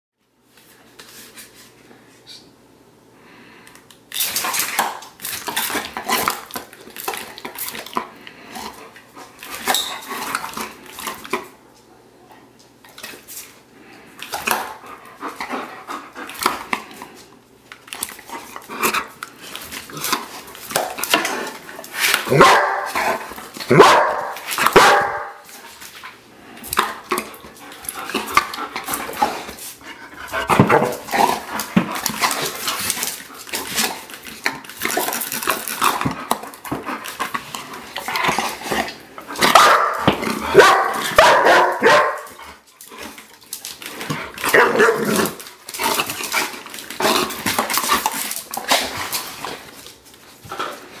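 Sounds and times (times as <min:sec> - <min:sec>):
dogs barking excitedly: 0:22.1 - 0:25.6, 0:39.2 - 0:43.4, 0:44.1 - 0:49.2.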